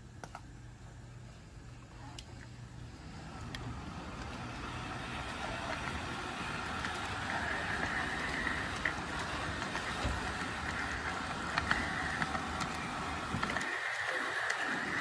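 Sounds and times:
model train motor and wheel hum: 0.0s - 15.0s
short clicks of train wheels: 3.3s - 15.0s.

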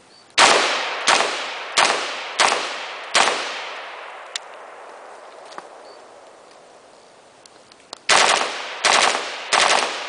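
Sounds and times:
rifle shots echoing: 0.4s - 5.1s, 8.1s - 10.0s.

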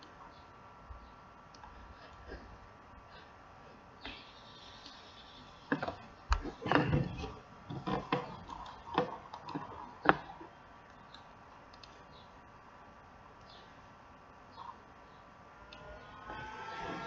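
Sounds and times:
computer mouse clicks: 10.9s - 12.0s.

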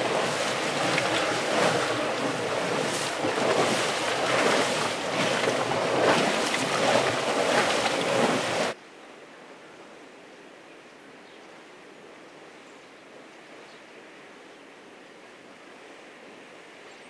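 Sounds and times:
hot spring venting steam: 0.0s - 8.8s.

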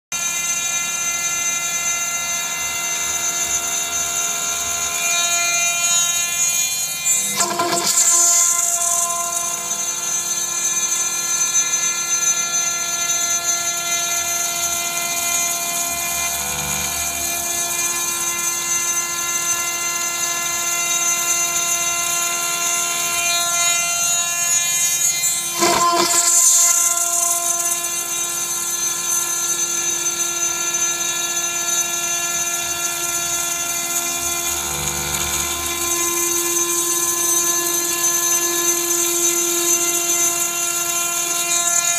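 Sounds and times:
high spindle whine: 0.2s - 41.9s.

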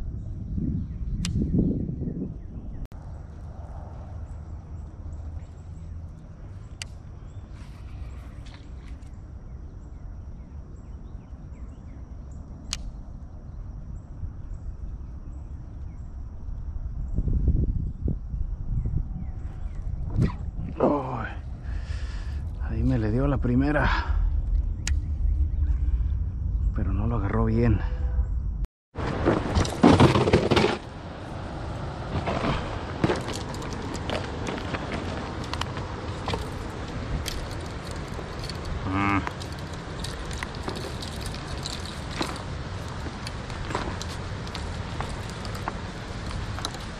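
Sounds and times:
steady low background noise: 2.5s - 46.9s
low outdoor rumble: 2.6s - 46.9s
insects trilling: 3.0s - 28.5s, 30.9s - 46.9s
fishing gear knocking and rustling: 32.5s - 46.9s.

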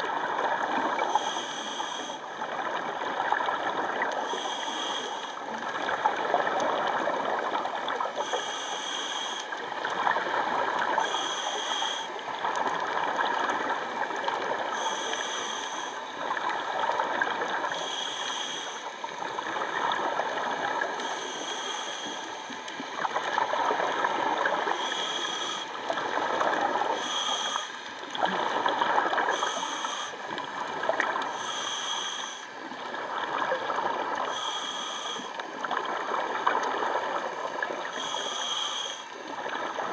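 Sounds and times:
diver breathing through regulator: 0.8s - 2.4s, 4.1s - 5.6s, 8.1s - 9.6s, 11.0s - 12.2s, 14.6s - 16.2s, 17.7s - 19.0s, 21.0s - 22.6s, 24.6s - 27.9s, 29.2s - 30.4s, 31.2s - 32.6s, 34.2s - 35.5s, 37.9s - 39.2s
gurgling exhaled bubbles: 5.5s - 8.4s, 28.0s - 31.4s.

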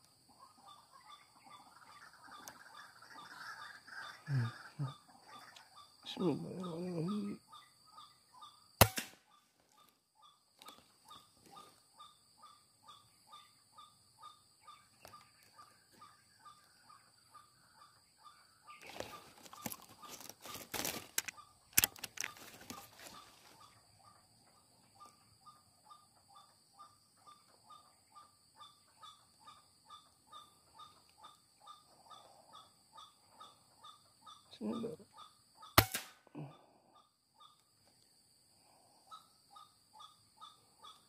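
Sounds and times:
regular insect chirp: 0.0s - 41.0s
sharp cracks: 8.8s - 9.2s, 35.8s - 36.3s
rustling in undergrowth: 18.8s - 23.8s.

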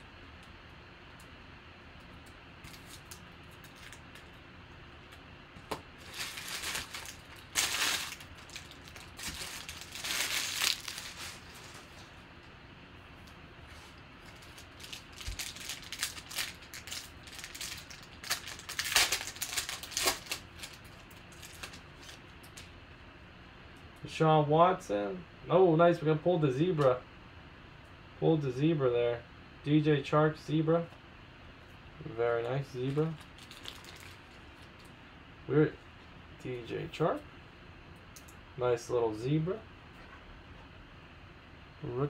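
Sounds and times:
foil wrappers tearing and crinkling: 2.6s - 4.3s, 6.0s - 11.9s, 14.3s - 22.7s, 32.8s - 34.8s.

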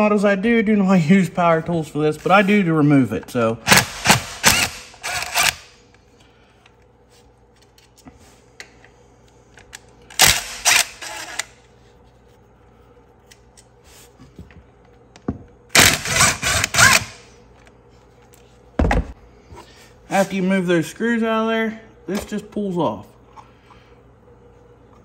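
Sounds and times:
cordless power tool spinning: 3.7s - 5.8s, 10.2s - 11.5s, 15.8s - 17.2s.

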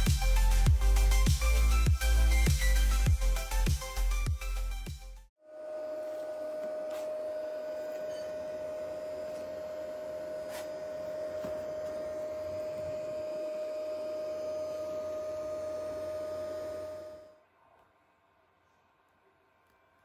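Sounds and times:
cooling fans whirring: 5.5s - 17.4s
steady whine: 5.5s - 17.4s.

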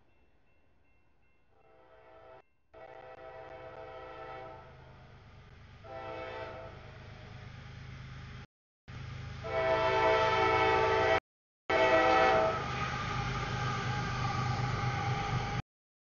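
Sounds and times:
locomotive air horn blast: 1.7s - 4.7s, 5.8s - 6.9s, 9.4s - 14.6s
locomotive rumbling past: 2.8s - 15.6s
train wheel noise: 3.1s - 15.6s.

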